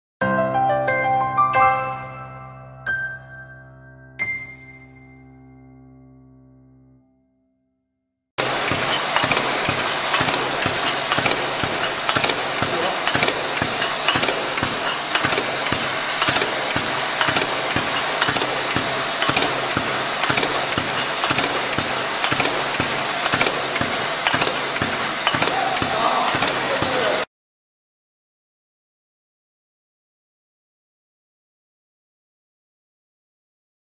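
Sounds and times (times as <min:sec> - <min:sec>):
machine clicks and knocks: 0:08.4 - 0:27.3
steady mechanical noise: 0:08.4 - 0:27.3.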